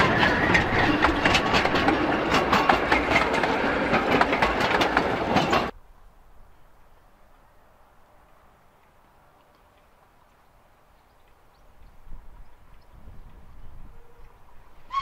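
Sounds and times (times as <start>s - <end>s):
train wheels clicking on track: 0.0s - 5.8s.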